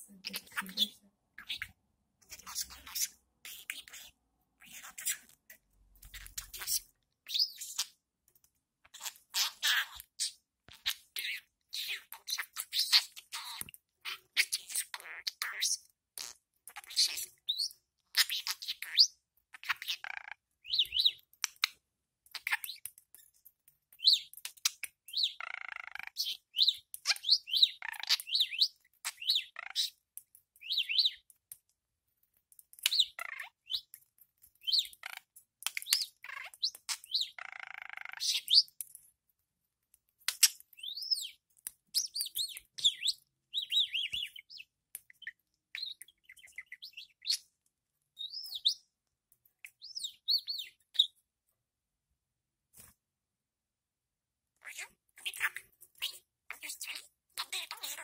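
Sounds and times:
budgerigar chattering and warbling: 0.2 - 5.4, 6.1 - 8.0, 8.9 - 21.7, 24.0 - 30.0, 30.6 - 31.2, 32.8 - 33.9, 34.6 - 38.8, 42.0 - 47.5, 48.2 - 48.8, 49.7 - 51.1, 54.6 - 58.0.

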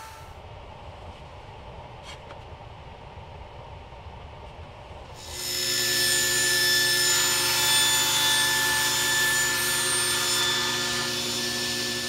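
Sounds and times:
saw blade cutting wood: 0.0 - 0.3, 5.2 - 12.0
table saw motor whine: 0.0 - 0.4, 5.2 - 12.0.

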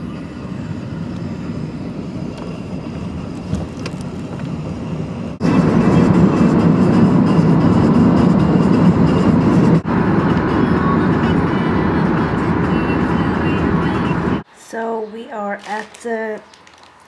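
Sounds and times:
road and engine rumble: 0.0 - 14.5, 15.4 - 17.0.

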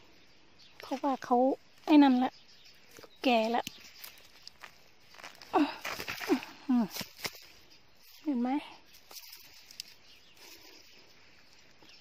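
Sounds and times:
roots tearing from soil: 2.9 - 10.7.

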